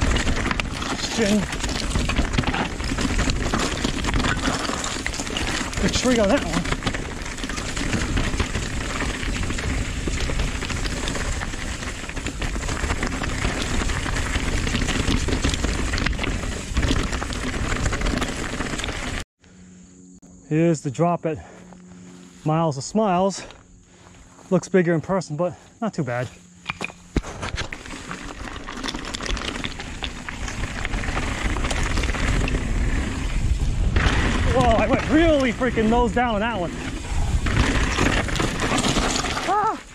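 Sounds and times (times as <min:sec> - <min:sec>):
wind rumble on microphone: 0:00.0 - 0:19.2, 0:29.2 - 0:39.9
bike tyres crackling over dirt: 0:00.0 - 0:19.3, 0:25.5 - 0:39.9
rattling clicks from bike: 0:27.6 - 0:33.4, 0:36.8 - 0:39.8
wind buffeting microphone: 0:29.8 - 0:38.8.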